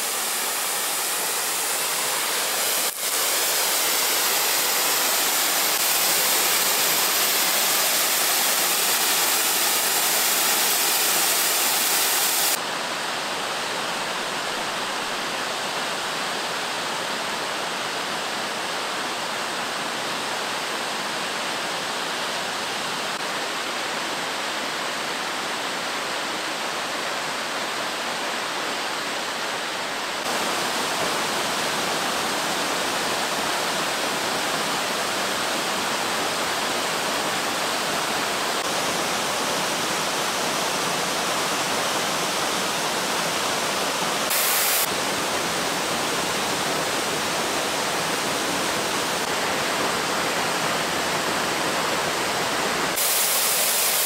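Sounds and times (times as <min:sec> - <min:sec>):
waterfall rushing: 0:00.0 - 0:12.6, 0:30.2 - 0:54.0.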